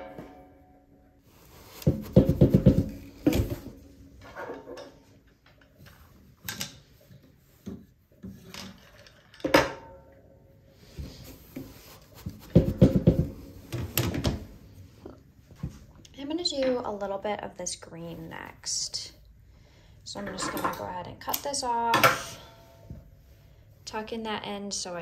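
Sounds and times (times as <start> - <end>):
loom heddle knocking: 1.8 - 3.5.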